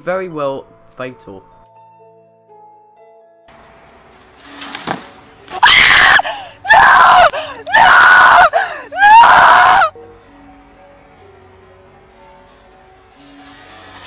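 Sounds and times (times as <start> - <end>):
person screaming: 5.6 - 9.9.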